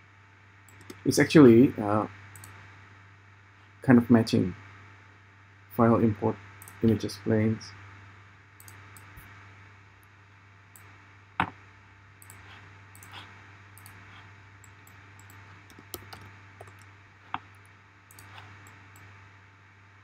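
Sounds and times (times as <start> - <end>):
faint steady low hum: 0.0 - 20.0
mouse and keyboard clicks: 8.6 - 9.1, 12.2 - 19.1.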